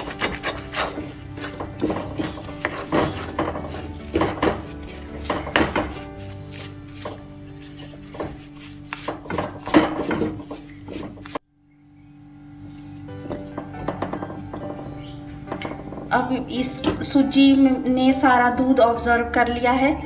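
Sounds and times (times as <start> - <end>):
background music: 0.0 - 11.4, 12.6 - 20.0
wooden spatula scraping metal pan: 0.0 - 11.4.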